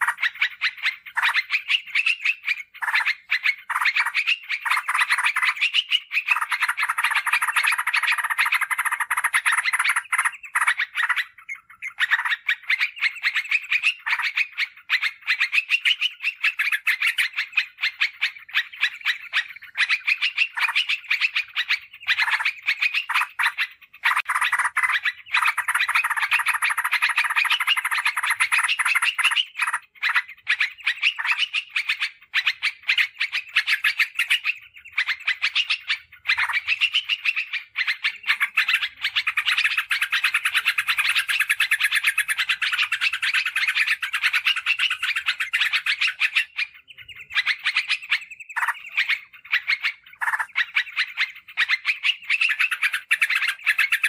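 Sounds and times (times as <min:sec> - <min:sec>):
bulbul fast chattering call: 0:00.0 - 0:54.0.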